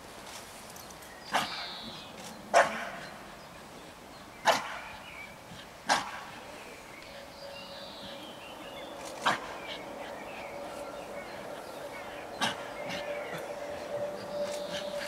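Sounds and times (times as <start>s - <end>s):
dog barking: 2.5s - 3.1s, 4.4s - 4.9s.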